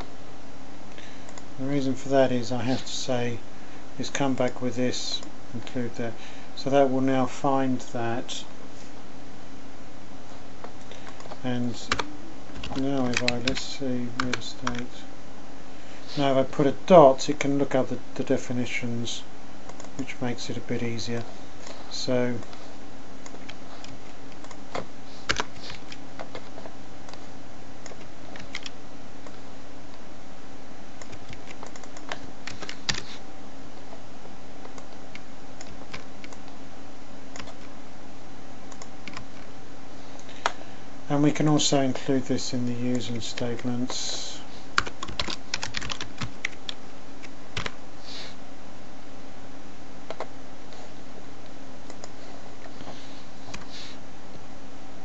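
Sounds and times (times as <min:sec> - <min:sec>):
background hiss: 0:00.0 - 0:55.0
faint hum: 0:00.0 - 0:55.0
computer keyboard typing: 0:11.0 - 0:14.9, 0:23.2 - 0:29.4, 0:31.0 - 0:33.1, 0:34.6 - 0:36.5, 0:37.4 - 0:37.7, 0:38.7 - 0:39.5, 0:44.8 - 0:46.8, 0:47.6 - 0:47.8
typing on computer keyboard: 0:44.8 - 0:46.7
steady hiss: 0:47.6 - 0:48.5, 0:50.2 - 0:55.0.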